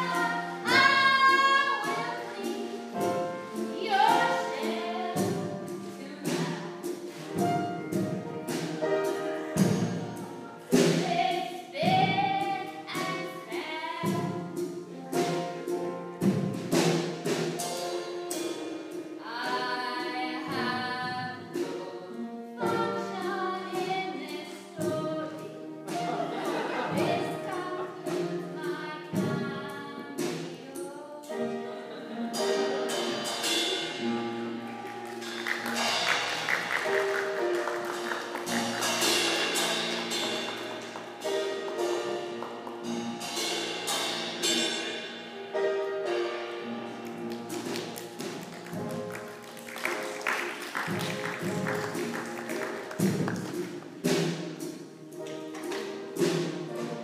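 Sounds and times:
woman singing: 0.0s - 6.8s, 10.7s - 14.5s, 19.2s - 25.9s, 26.9s - 31.6s
musical accompaniment: 0.0s - 57.0s
sharp percussive strikes: 32.4s - 45.6s.

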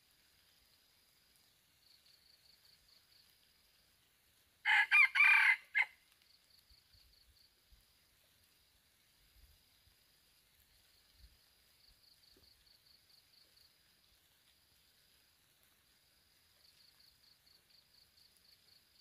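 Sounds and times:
high insect trill: 0.0s - 19.0s
rooster crowing: 4.6s - 6.0s.

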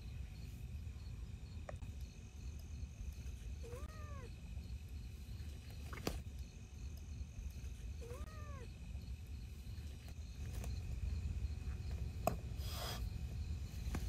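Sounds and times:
cat meowing: 3.6s - 4.3s, 8.0s - 8.7s.

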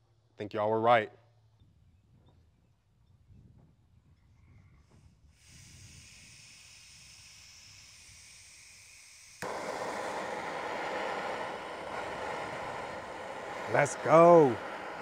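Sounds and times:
gas hissing from valve: 5.3s - 15.0s
torch flame hissing: 5.3s - 15.0s.

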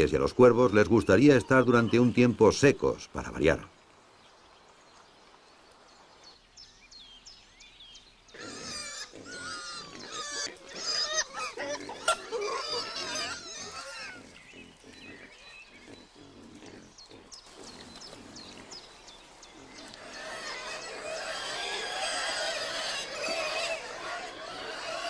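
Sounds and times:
small birds chirping faintly: 0.0s - 25.0s
wild boars squealing: 8.4s - 18.8s, 19.5s - 25.0s.

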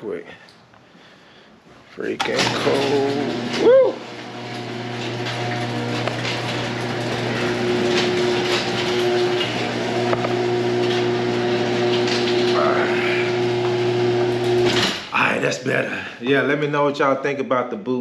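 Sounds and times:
garage door opener motor hum: 2.2s - 15.8s.

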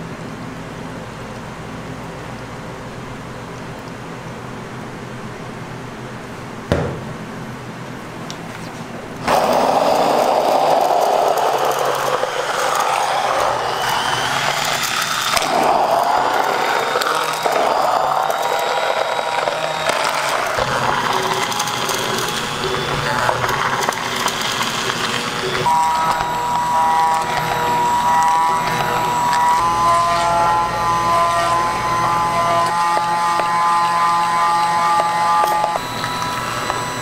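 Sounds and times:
stick blender churning liquid: 9.2s - 37.0s.

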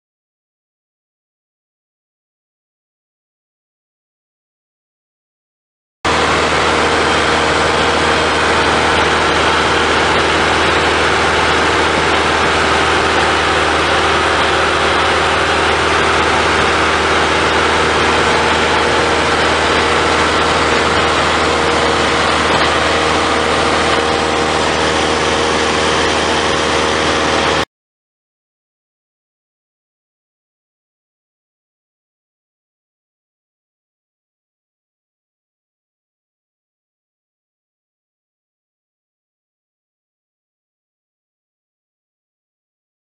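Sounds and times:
propeller plane engine drone: 6.1s - 27.7s.

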